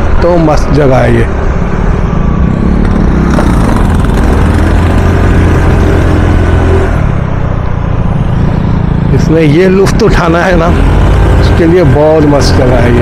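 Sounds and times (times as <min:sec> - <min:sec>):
wind and road rush: 0:00.0 - 0:13.0
scooter engine running: 0:02.3 - 0:06.8.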